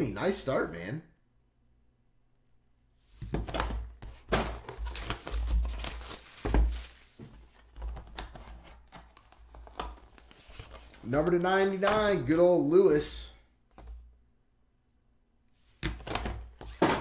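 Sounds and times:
cardboard box crinkling and tearing: 4.4 - 9.0.

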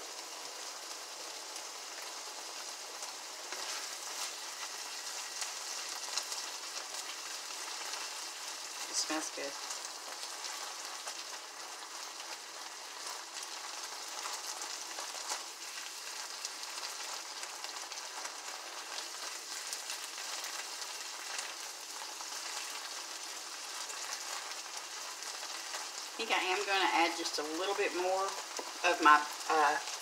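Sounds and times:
meat sizzling in a frying pan: 0.0 - 30.0
spatula scraping a pan: 3.5 - 4.8.

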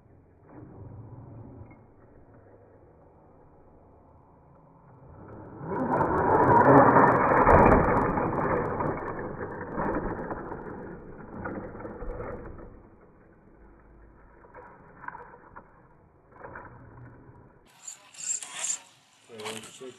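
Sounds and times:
toy truck motor whirring: 5.0 - 19.9.

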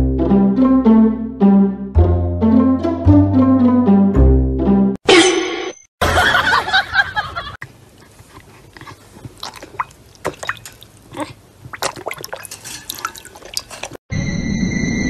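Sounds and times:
water splashing in a bowl: 8.7 - 14.0.

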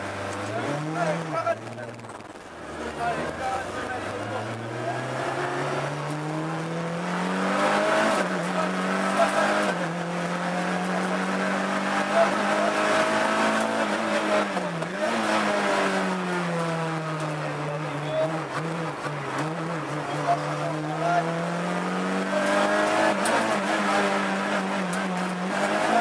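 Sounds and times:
car engine accelerating: 0.0 - 26.0
road and tyre noise: 0.0 - 26.0.

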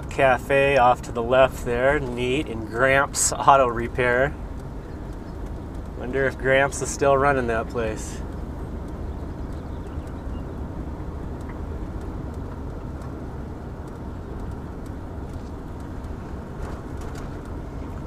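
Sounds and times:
road noise: 0.0 - 18.0
van engine rumble: 0.0 - 18.0.

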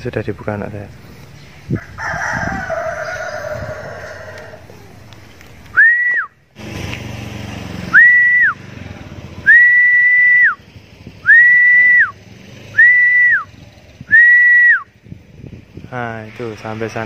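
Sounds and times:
person whistling: 5.7 - 6.4, 7.9 - 8.6, 9.4 - 10.6, 11.2 - 12.2, 12.8 - 13.5, 14.1 - 14.9.

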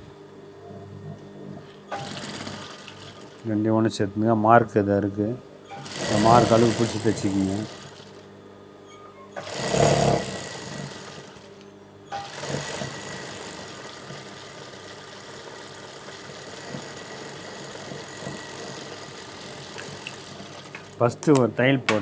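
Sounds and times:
sewing machine motor hum: 0.8 - 3.6, 5.7 - 8.4, 9.4 - 21.4
sewing machine running: 1.9 - 3.5, 5.7 - 8.3, 9.4 - 21.1.

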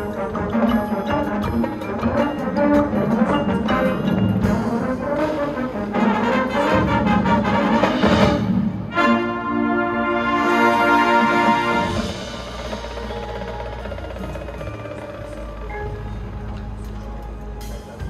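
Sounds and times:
marching band playing: 0.0 - 18.0.

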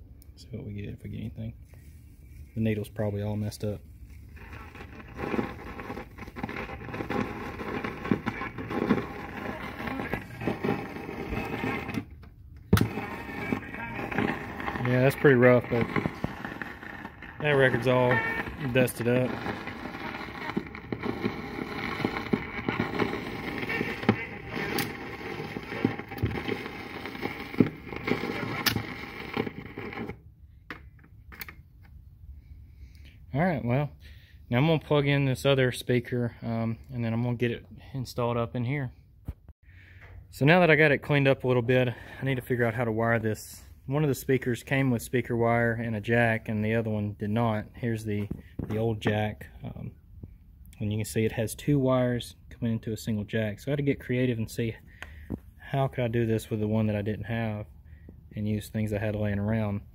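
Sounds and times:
vinyl record crackle and hiss: 4.2 - 12.0, 12.8 - 30.2.

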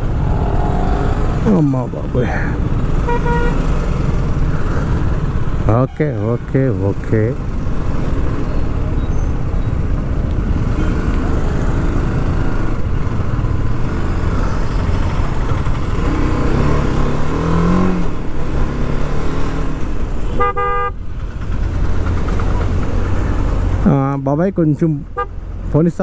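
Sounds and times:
engine revving: 0.0 - 2.0, 15.6 - 19.8
traffic engines rumbling: 0.0 - 26.0
vehicle horn blast: 3.0 - 3.6, 20.3 - 21.0.

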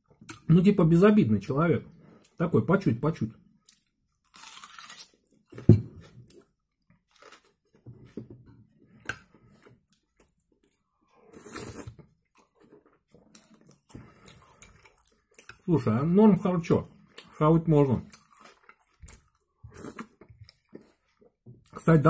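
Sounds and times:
man chewing: 8.8 - 15.6, 16.9 - 17.4, 18.0 - 21.8
slurping from spoon: 11.2 - 12.1.

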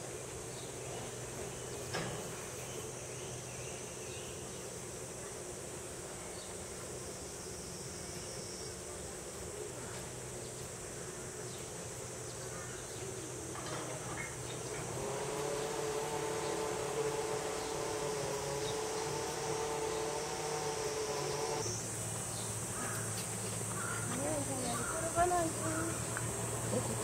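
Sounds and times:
high insect drone: 0.0 - 27.0
low outdoor background hum: 0.0 - 27.0.

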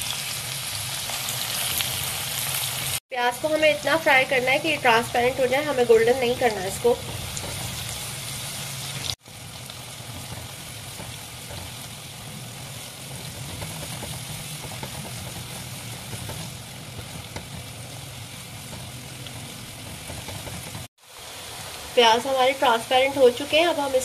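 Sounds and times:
onions sizzling in hot oil: 0.0 - 24.0.

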